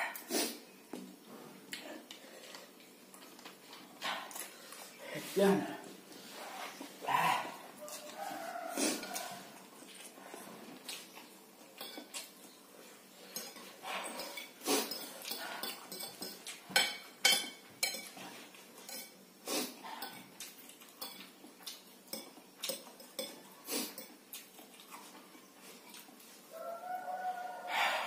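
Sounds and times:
chewing: 1.3 - 5.0, 6.1 - 17.0, 17.8 - 27.7
forks clinking on plate: 11.7 - 12.3, 13.3 - 19.2.

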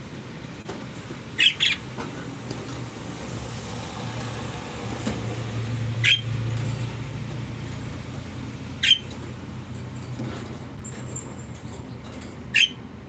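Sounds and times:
budgerigar chirping: 1.4 - 1.8, 6.0 - 6.3, 8.8 - 9.1, 12.5 - 12.8.

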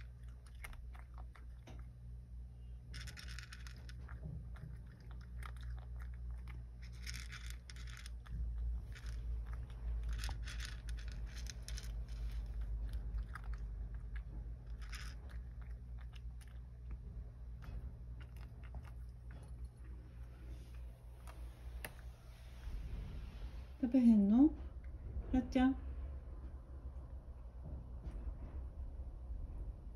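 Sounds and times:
cat crunching dry kibble: 0.0 - 22.1
steady low hum: 0.0 - 29.9.

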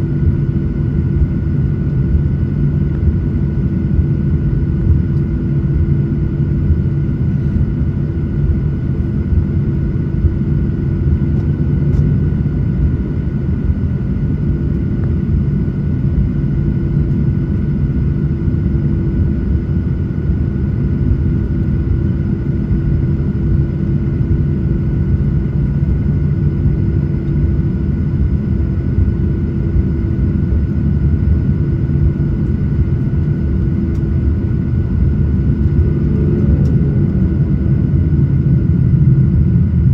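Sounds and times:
jet engines idling: 18.6 - 39.9.

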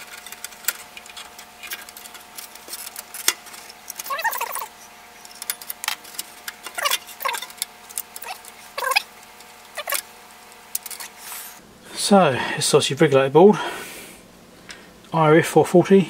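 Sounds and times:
board squeaking in guides: 8.2 - 9.1.

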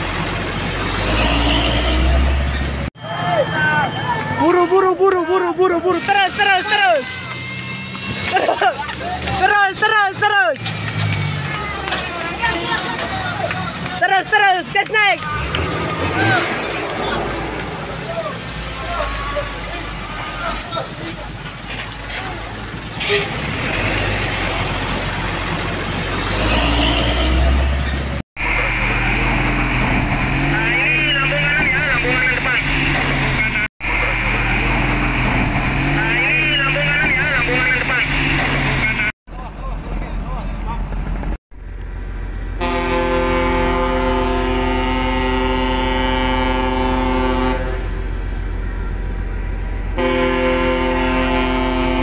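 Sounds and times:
truck diesel engine rumbling: 0.0 - 5.8, 7.8 - 52.0
low engine rumble: 27.5 - 52.0
ship's horn blasts: 42.6 - 48.0, 50.0 - 52.0.

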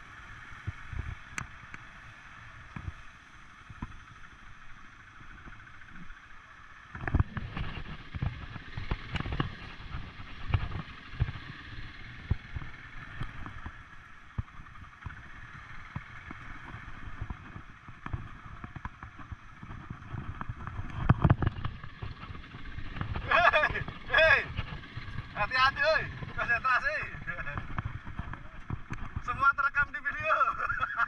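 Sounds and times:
quad bike engine hum: 0.0 - 31.0
knocks and thumps over rough ground: 6.9 - 31.0.

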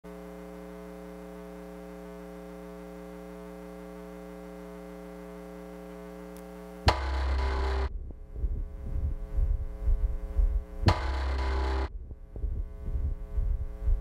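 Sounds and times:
electrical mains hum: 0.1 - 14.0.

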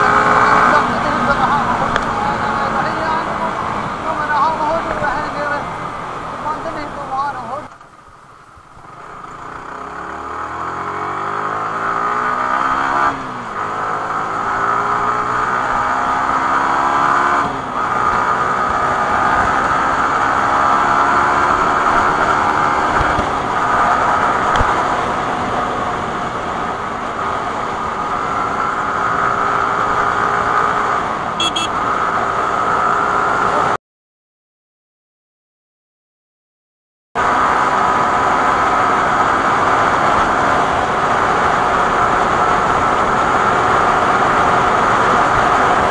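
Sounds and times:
motorcycle engine accelerating: 0.0 - 7.8, 8.6 - 33.8.

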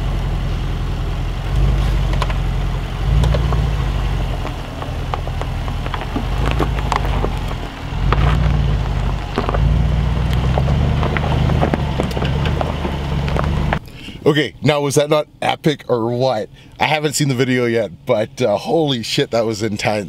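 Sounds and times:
car engine droning: 0.0 - 20.0
gravel crunching under tyres: 0.0 - 20.0.

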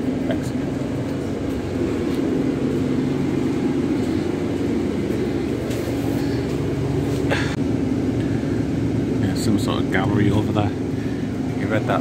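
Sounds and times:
bus engine droning: 0.0 - 12.0.

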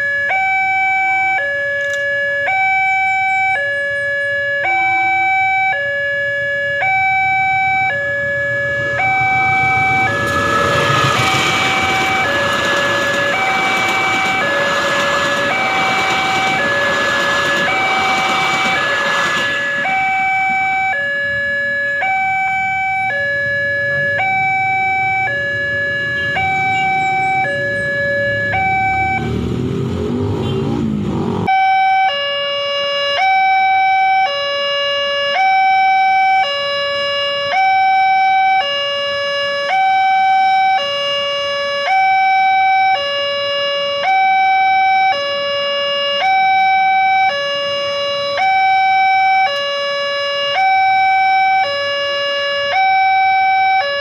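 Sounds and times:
road vehicle engines: 0.1 - 54.0
level crossing two-tone signal: 6.8 - 29.4
passenger train rumbling past: 8.4 - 21.0.

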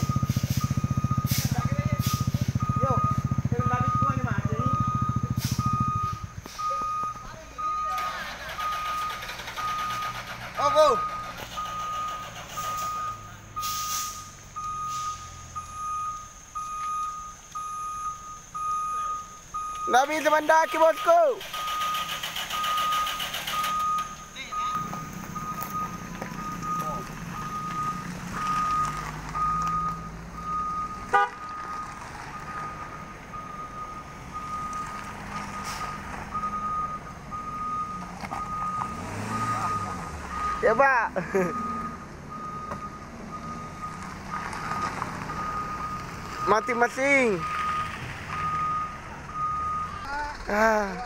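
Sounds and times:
low engine rumble: 0.0 - 51.0
truck reversing alarm beeping: 0.0 - 51.0
short hiss: 13.6 - 14.3.

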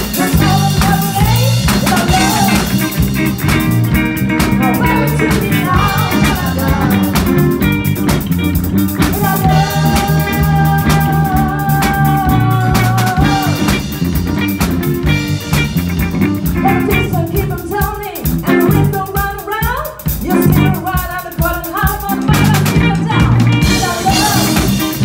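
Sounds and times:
person singing: 0.0 - 3.0, 4.4 - 7.7, 9.0 - 13.9, 16.5 - 25.0
live rock band playing: 0.0 - 25.0
steady drum beat: 0.0 - 25.0.

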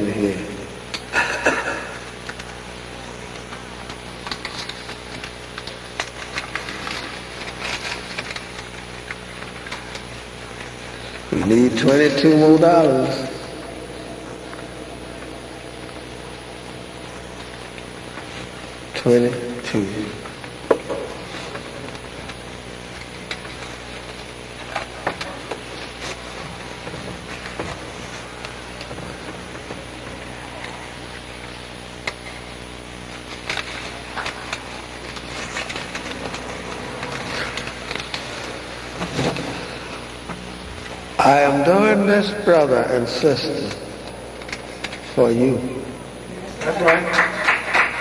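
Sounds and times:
electrical hum and hiss: 0.0 - 48.0.

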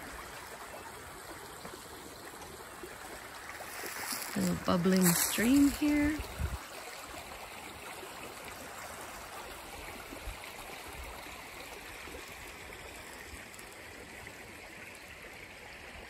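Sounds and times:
stream bubbling: 0.0 - 16.0.

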